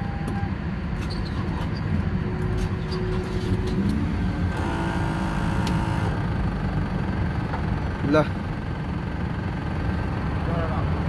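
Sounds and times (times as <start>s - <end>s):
vehicle engine running: 2.0s - 11.0s
steady tones: 4.5s - 6.3s.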